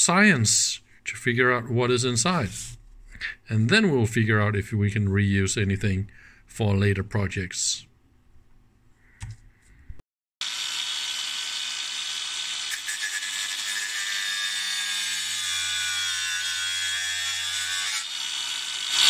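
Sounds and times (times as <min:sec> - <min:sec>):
cut-off grinder cutting sheet metal: 0:10.4 - 0:19.0.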